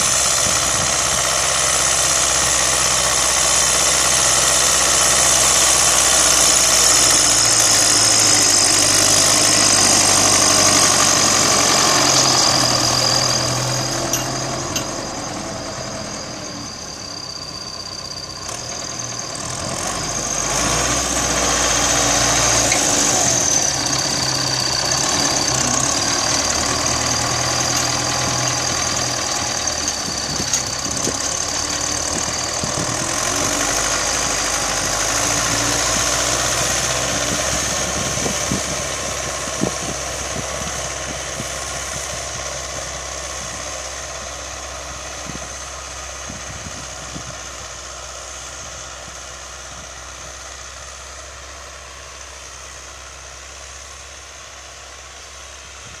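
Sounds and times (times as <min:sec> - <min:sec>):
tractor diesel engine: 0:00.0 - 0:56.0.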